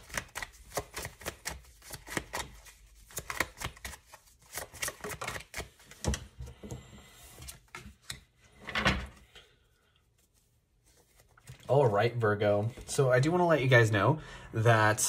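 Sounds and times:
cards being shuffled: 0:00.0 - 0:06.3.

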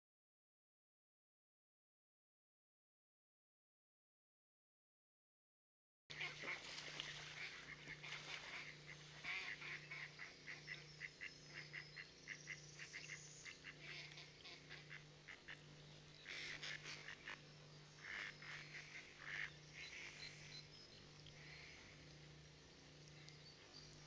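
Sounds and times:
ducks quacking: 0:06.1 - 0:22.2.

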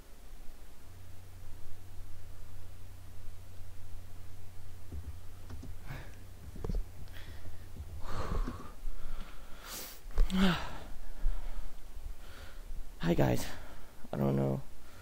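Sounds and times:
low steady hum: 0:00.0 - 0:15.0
soft knocks: 0:04.9 - 0:05.8
breaths and sniffs into microphone: 0:05.8 - 0:10.1.

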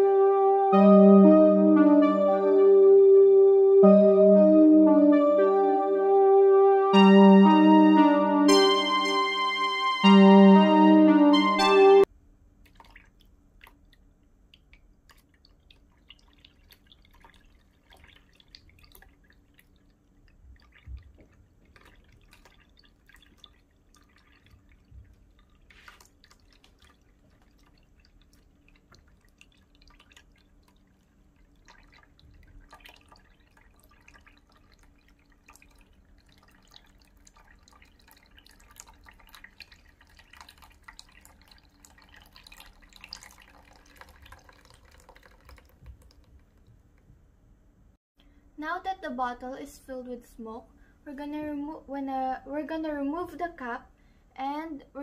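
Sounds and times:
water dripping into plastic basin: 0:12.6 - 0:47.1.

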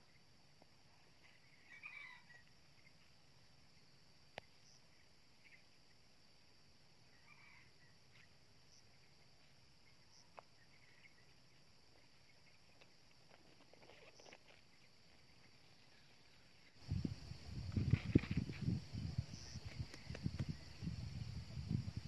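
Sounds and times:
rustling in a woven basket: 0:12.0 - 0:16.9.

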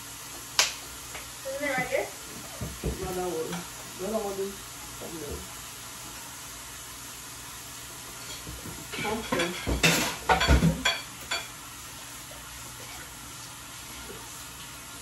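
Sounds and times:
forks clinking on plates: 0:08.2 - 0:11.5.

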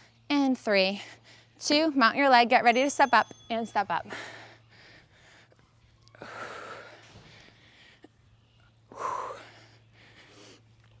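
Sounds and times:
woman breathing hard: 0:04.0 - 0:10.8.

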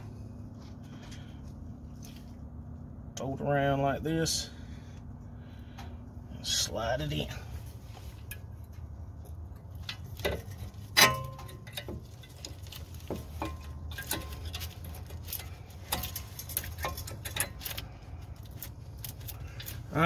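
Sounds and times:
sharp ringing metal clack: 0:10.9 - 0:12.0.

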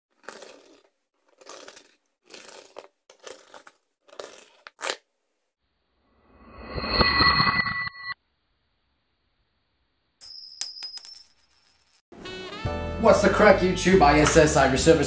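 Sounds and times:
coins scraping and clinking: 0:00.1 - 0:05.1, 0:10.2 - 0:12.0.

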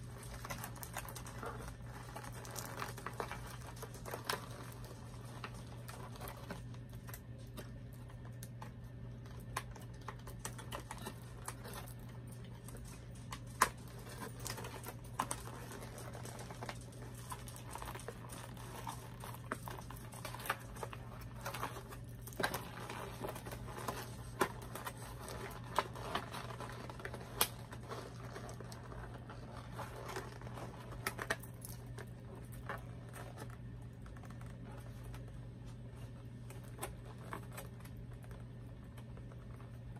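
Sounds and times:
plastic and cardboard crinkling: 0:00.0 - 0:39.9
steady low hum: 0:00.0 - 0:39.9.

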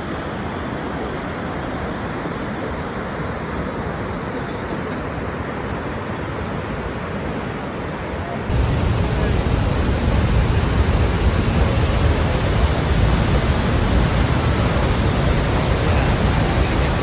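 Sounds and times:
waterfall roaring: 0:08.4 - 0:17.0.

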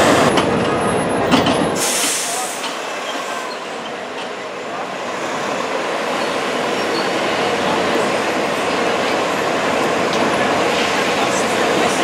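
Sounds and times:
traffic: 0:00.0 - 0:12.0.

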